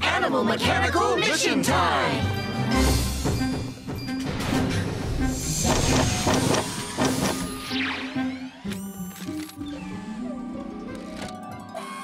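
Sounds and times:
cartoon background music: 0.0 - 12.0
rising electronic glides: 5.8 - 11.2.

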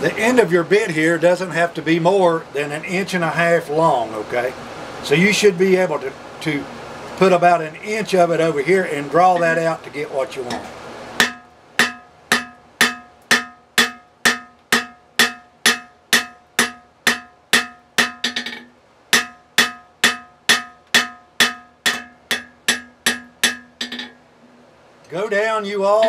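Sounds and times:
hammer striking metal on anvil: 10.5 - 24.2.

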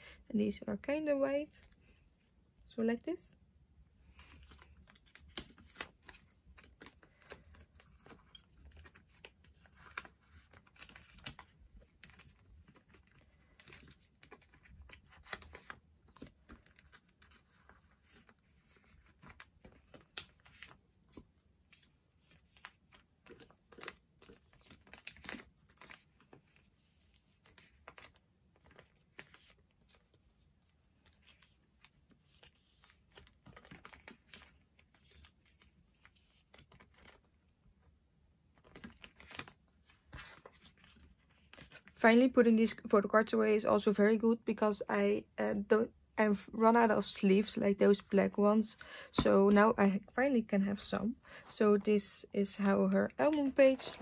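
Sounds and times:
plastic sleeves crinkling: 4.1 - 37.4, 38.5 - 42.0, 53.1 - 54.0.

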